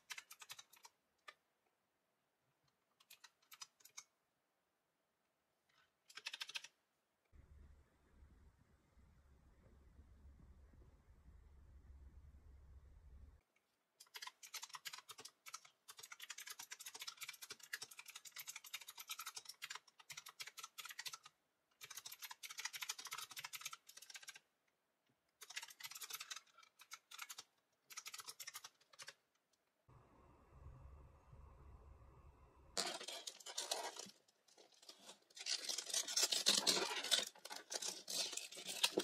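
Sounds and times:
typing on mechanical keyboard: 0.0s - 1.4s, 3.0s - 4.1s, 6.1s - 6.8s, 14.0s - 24.5s, 25.4s - 29.2s.

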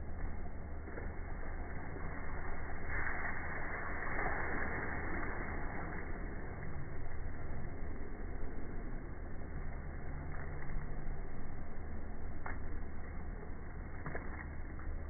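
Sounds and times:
low mechanical hum: 0.0s - 15.0s
rush of noise: 0.0s - 15.0s.

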